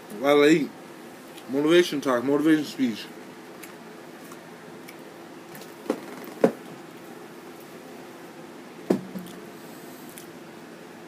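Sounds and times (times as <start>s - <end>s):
low room hum: 0.0s - 11.0s
soft thumps: 8.9s - 9.4s.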